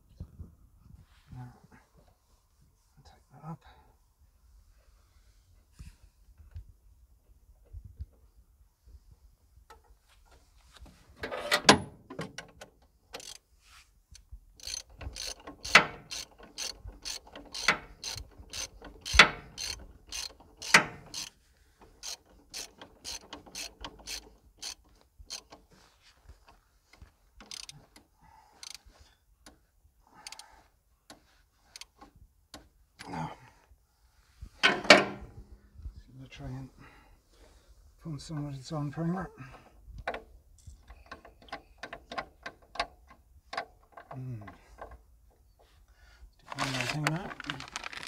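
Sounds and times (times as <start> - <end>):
hand fuel pump clicking: 14.6 - 25.7, 27.4 - 28.8, 40.0 - 44.2.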